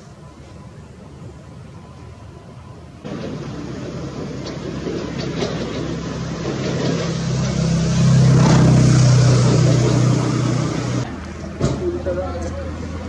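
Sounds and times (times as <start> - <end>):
motor engine humming: 0.0 - 13.0.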